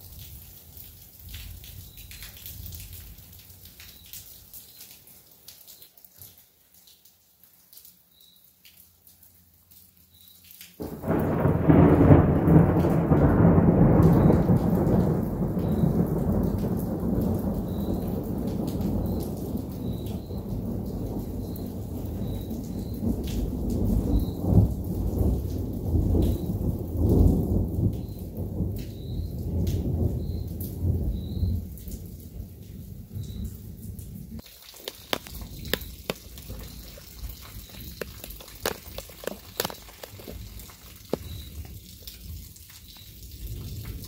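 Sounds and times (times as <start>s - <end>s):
thunder rolling and rumbling: 10.8s - 34.4s, 43.3s - 44.0s.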